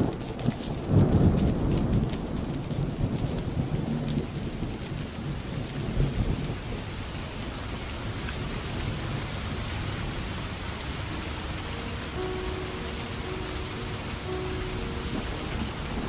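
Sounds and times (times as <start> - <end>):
low rolling thunder: 0.0 - 16.0
steady rain falling: 0.0 - 16.0
soft piano notes: 9.0 - 16.0.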